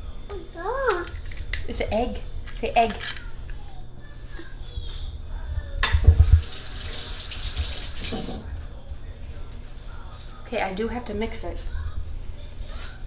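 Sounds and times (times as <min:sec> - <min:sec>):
tap water running: 0:06.2 - 0:08.5.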